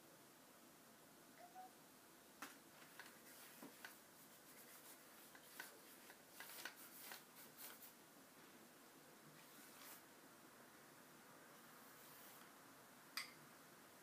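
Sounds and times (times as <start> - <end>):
brush scratching on paper: 3.2 - 8.0.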